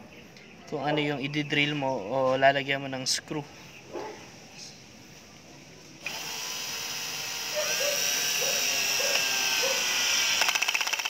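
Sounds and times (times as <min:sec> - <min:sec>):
cordless drill motor whining: 0:06.0 - 0:11.0
drill clutch ratcheting: 0:06.0 - 0:11.0.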